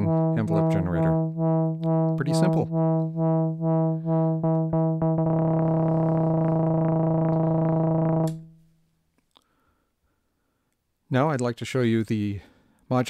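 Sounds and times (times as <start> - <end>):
synthesizer pulsing note: 0.0 - 8.5.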